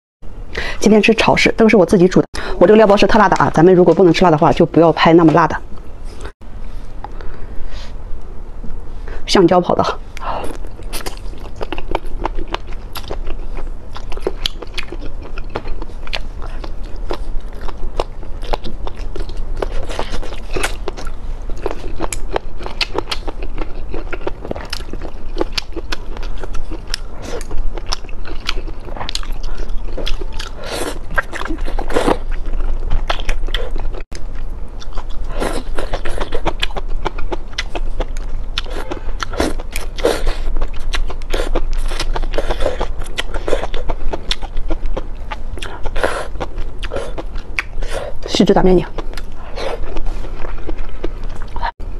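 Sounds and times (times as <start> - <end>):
chewing noodles: 10.5 - 48.3, 48.9 - 51.7.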